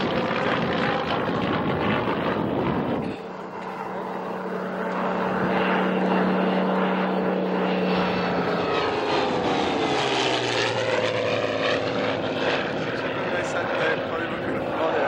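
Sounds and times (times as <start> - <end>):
propeller aircraft engine drone: 0.0 - 15.0.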